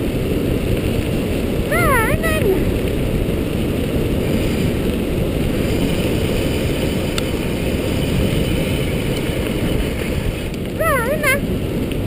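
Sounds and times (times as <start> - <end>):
wind on microphone: 0.0 - 12.0
scooter rolling over gravel: 2.6 - 10.8.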